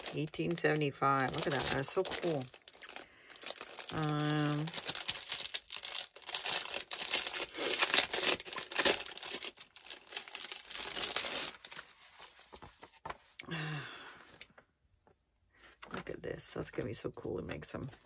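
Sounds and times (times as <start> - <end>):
plastic sleeve crinkling: 0.0 - 13.3
old paper rustling: 0.0 - 13.4, 15.6 - 18.0.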